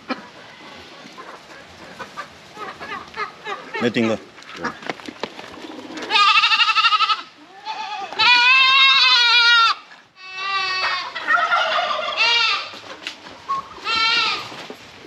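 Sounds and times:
goats bleating: 0:06.0 - 0:12.8, 0:13.8 - 0:14.5.

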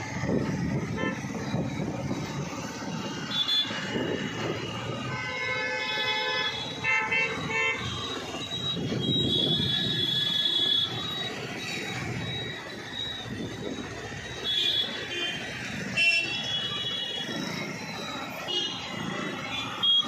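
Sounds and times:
road traffic rumbling: 0:00.0 - 0:20.0
vehicle horns honking: 0:00.9 - 0:01.2, 0:03.3 - 0:11.0.

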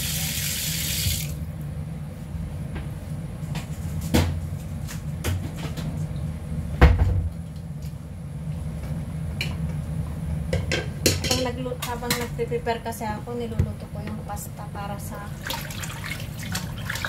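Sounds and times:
low kitchen hum: 0:00.0 - 0:17.0
knocks in kitchen: 0:04.1 - 0:04.4, 0:06.8 - 0:07.3.

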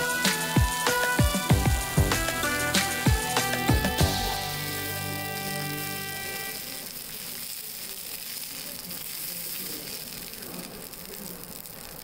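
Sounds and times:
beef sizzling on a griddle: 0:00.0 - 0:12.0.

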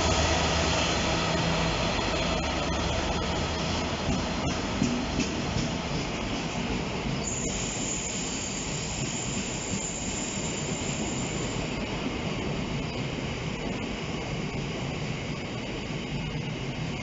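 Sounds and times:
freight wagons rumbling on rails: 0:00.0 - 0:10.0.

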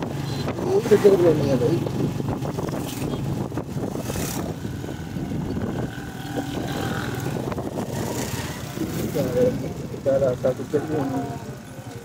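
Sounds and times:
motorcycle engine cruising: 0:00.0 - 0:12.0
wind on microphone: 0:01.7 - 0:09.9.

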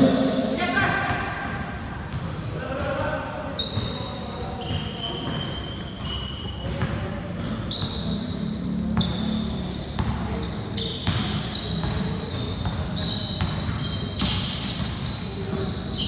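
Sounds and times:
voices in background: 0:00.0 - 0:08.4
sneakers squeaking on court: 0:00.9 - 0:16.0
basketball bouncing: 0:10.0 - 0:10.4, 0:11.0 - 0:15.6.

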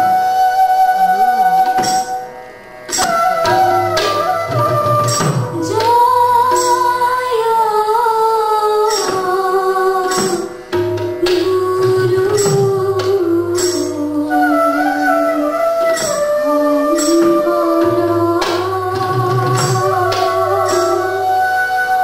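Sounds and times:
bamboo flute melody: 0:00.0 - 0:07.5, 0:11.4 - 0:22.0
percussion strokes: 0:02.9 - 0:07.9, 0:08.8 - 0:22.0
person singing: 0:03.2 - 0:10.4, 0:11.2 - 0:15.2.

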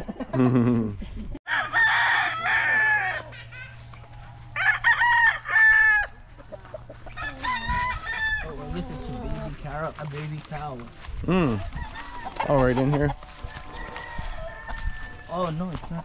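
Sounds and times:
roosters crowing: 0:01.5 - 0:15.9.

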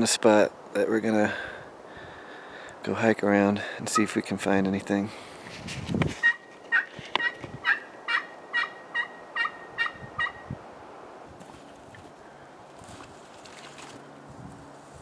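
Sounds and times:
turkey yelps: 0:06.2 - 0:10.5.

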